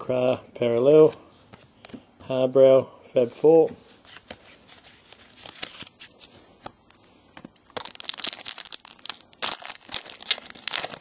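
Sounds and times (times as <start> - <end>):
wrapper tearing and crinkling: 7.6 - 11.0.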